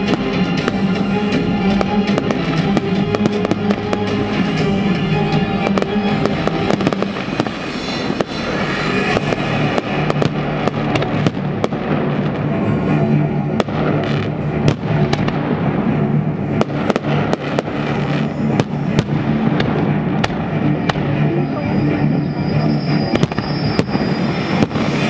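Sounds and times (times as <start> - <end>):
music with low notes: 0.0 - 25.0
firework shells bursting: 5.8 - 12.4.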